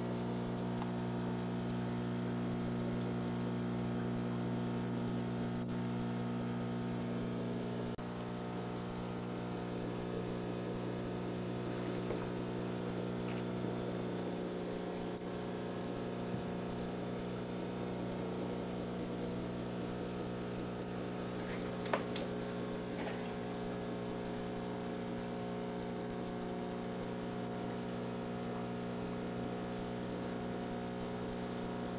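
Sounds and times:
aquarium pump humming: 0.0 - 31.9
water pattering: 20.5 - 24.6.

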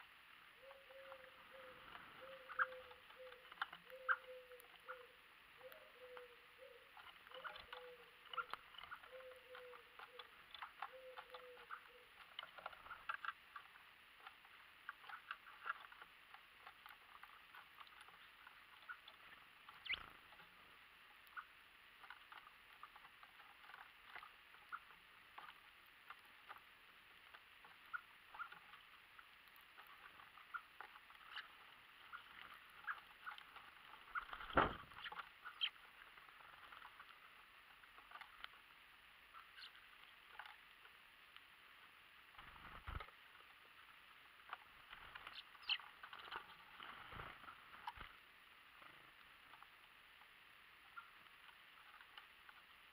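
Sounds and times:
birds pecking on wooden tray: 0.3 - 52.9
low bird call: 0.6 - 13.3.

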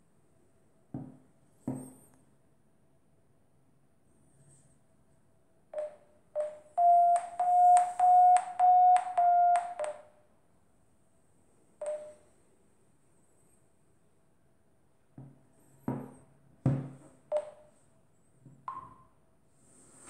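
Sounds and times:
phone beeping: 5.8 - 10.1, 11.8 - 12.3.

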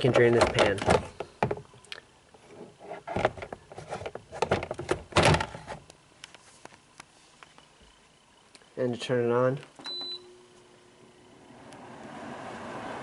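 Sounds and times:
plastic bin knocking and scraping: 0.0 - 1.6, 2.6 - 5.8.

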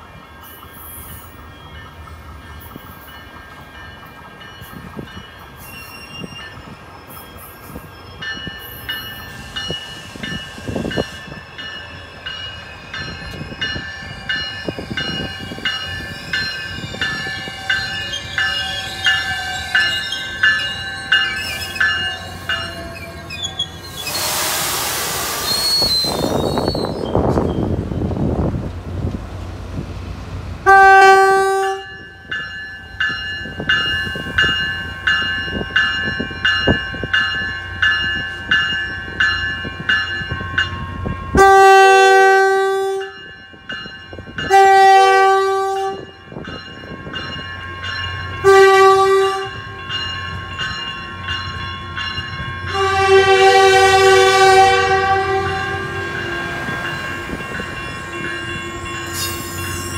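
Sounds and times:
warning bell ringing: 7.3 - 23.8, 45.8 - 59.9
train horn blasts: 30.6 - 32.0, 41.4 - 43.2, 44.4 - 46.2, 48.4 - 49.6, 52.7 - 56.8.

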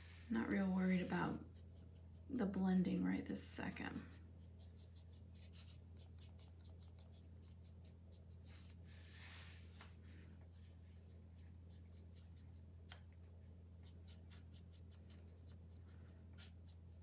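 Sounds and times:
steady low hum: 0.0 - 17.0
paintbrush scratching and tapping: 0.6 - 8.8.

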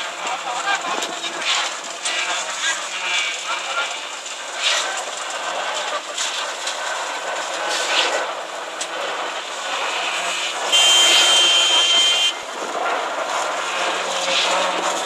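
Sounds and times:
construction machinery din: 0.0 - 15.0
high-pitched whine: 8.0 - 15.0.

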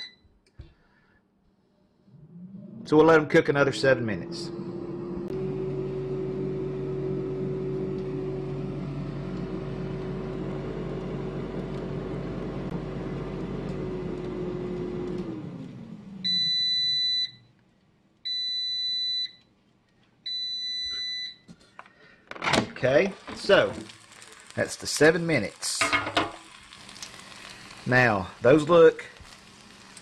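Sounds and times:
long beeps: 0.0 - 0.2
air fryer fan running: 2.9 - 16.8.

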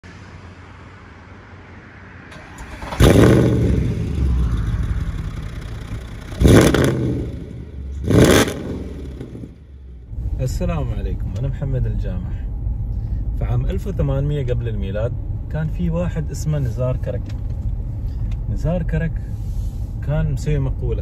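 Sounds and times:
car engine revving: 2.0 - 11.2.

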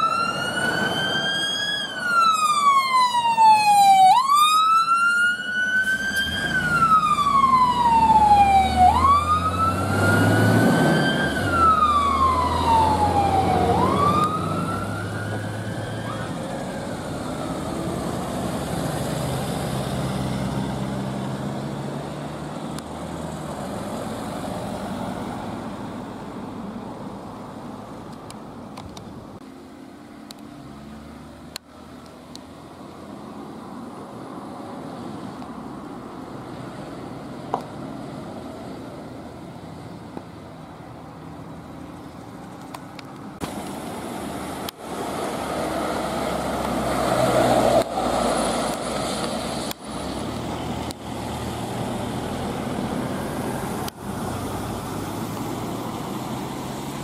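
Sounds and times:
fire engine siren wailing: 0.0 - 22.0
fire engine rumbling: 0.0 - 57.0.

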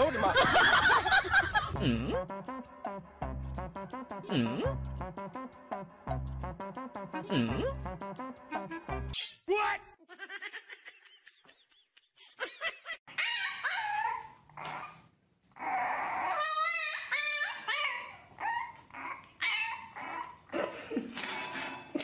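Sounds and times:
puppy whining and yipping: 13.1 - 20.5.

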